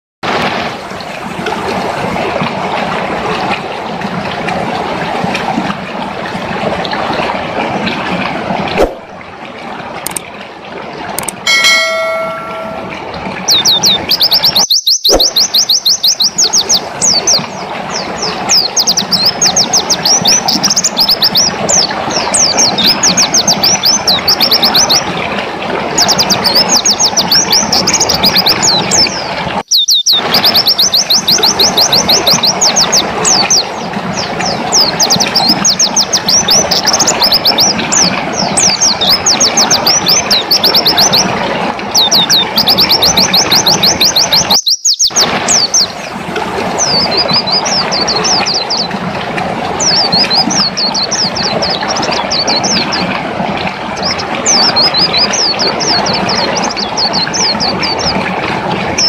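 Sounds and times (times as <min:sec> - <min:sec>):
steady rushing noise: 0:08.2 - 0:09.2
bird singing fast high notes: 0:11.5 - 0:16.8, 0:29.7 - 0:31.0, 0:44.4 - 0:45.9.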